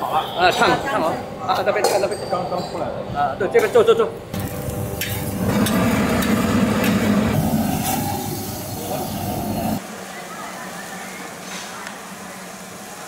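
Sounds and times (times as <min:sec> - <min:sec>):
gas burner roaring: 0:04.2 - 0:13.0.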